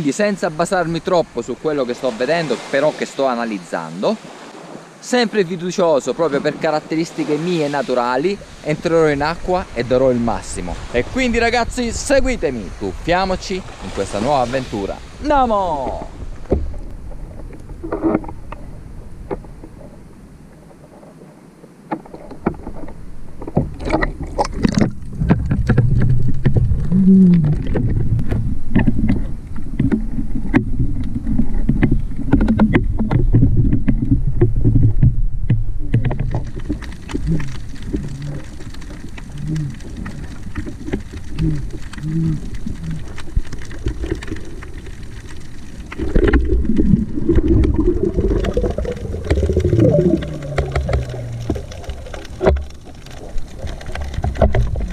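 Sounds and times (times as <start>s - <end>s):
underwater low rumble: 8.2s - 54.9s
clicks and knocks: 21.9s - 54.9s
short low-pitched sounds: 24.7s - 29.3s, 46.0s - 51.8s.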